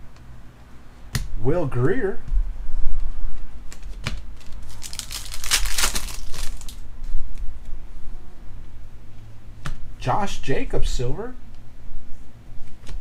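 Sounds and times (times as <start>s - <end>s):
trading cards rustling: 3.8s - 6.8s.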